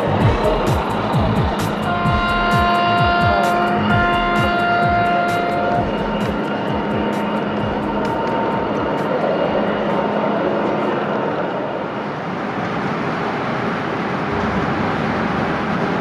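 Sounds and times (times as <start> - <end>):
hall hubbub: 0.0 - 12.0.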